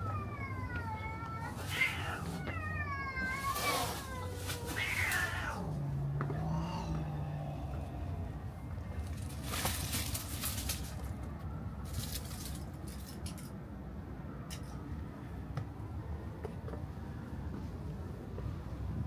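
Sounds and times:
rustling on dry leaves: 1.4s - 5.9s, 8.9s - 13.2s.

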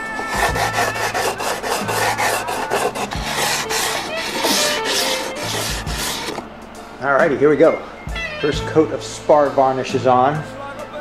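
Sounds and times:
sanding block rasping on wood: 0.0s - 6.4s.

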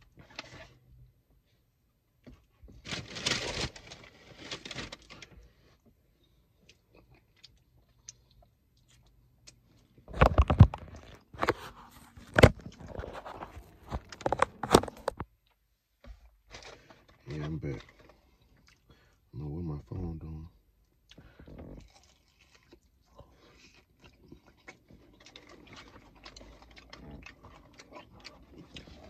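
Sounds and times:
fried chicken crunching and tearing: 2.8s - 5.4s, 21.1s - 29.0s
wet chewing clicks and smacks: 6.6s - 9.8s, 17.6s - 19.0s, 20.8s - 29.0s.

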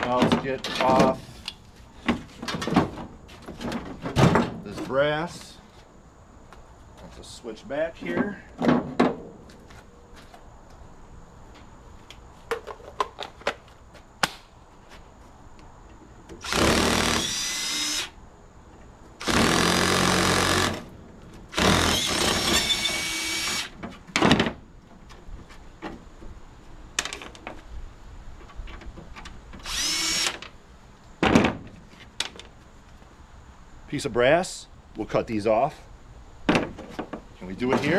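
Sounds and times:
power drill running: 16.4s - 18.2s, 19.2s - 20.8s, 21.5s - 23.7s, 29.6s - 30.4s.

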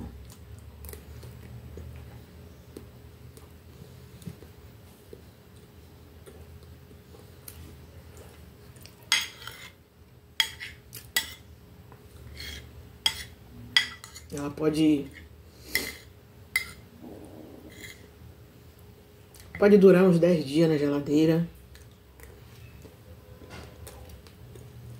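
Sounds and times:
metal spoon scraping a plate: 9.1s - 9.8s, 12.3s - 14.3s, 17.7s - 18.1s.

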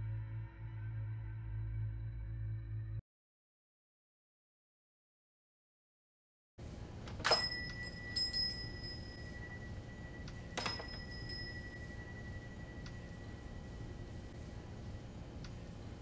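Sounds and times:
low room hum: 6.6s - 16.0s
metallic clink with bell-like ring: 7.2s - 14.2s.

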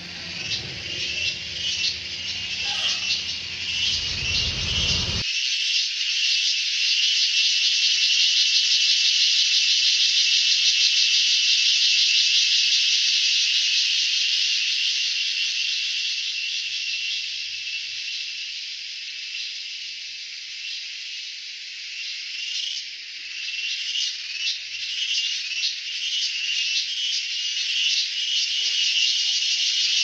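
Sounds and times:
insects shrilling chorus: 0.0s - 6.5s, 20.6s - 30.0s.

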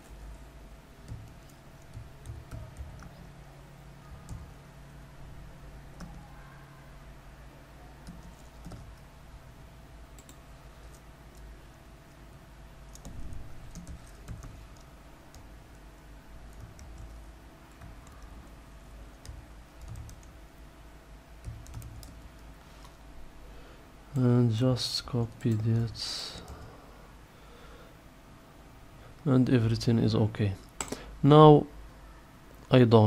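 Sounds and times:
steady low hum: 0.0s - 33.0s
typing on a keyboard: 1.0s - 3.3s, 8.0s - 9.0s, 12.9s - 15.5s, 16.5s - 17.2s, 19.2s - 20.4s, 21.4s - 22.4s.

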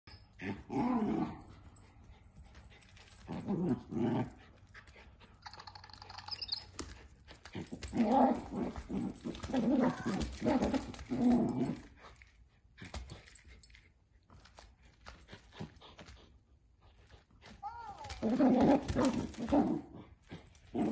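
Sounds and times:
puppy play-growling: 0.2s - 13.8s, 17.9s - 20.9s.

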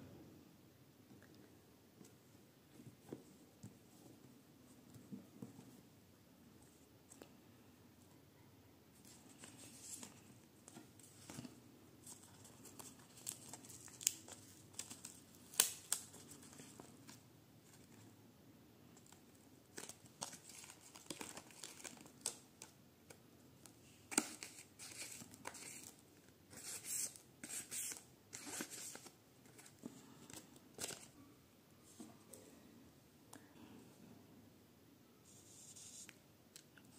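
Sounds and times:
paper rustling and crinkling: 19.0s - 22.7s.

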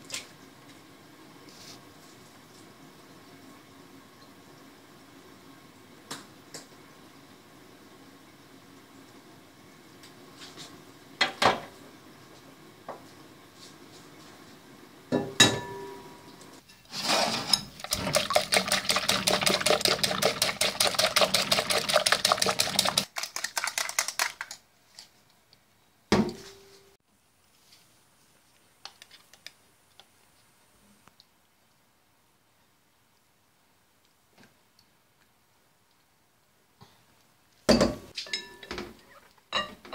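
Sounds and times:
eggs beaten in glass bowl: 17.7s - 24.6s.

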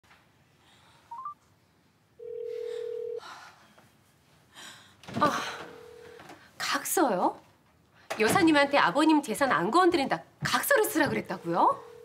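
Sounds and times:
phone ringback tone: 2.2s - 3.2s, 5.7s - 6.2s, 11.3s - 12.0s.

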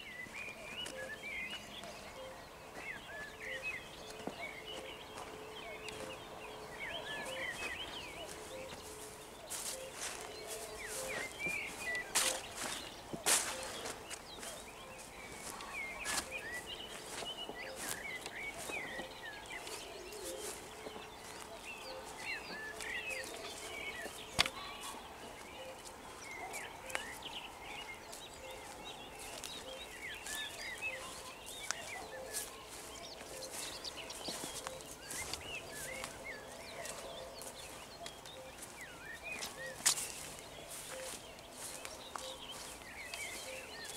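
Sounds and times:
songbirds chirping and warbling: 0.0s - 43.9s.

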